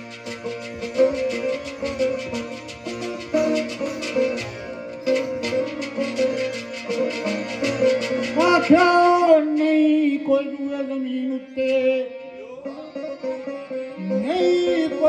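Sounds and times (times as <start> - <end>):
harmonium drone: 0.0 - 15.0
sitar strums: 0.0 - 15.0
man singing into a microphone: 8.4 - 15.0.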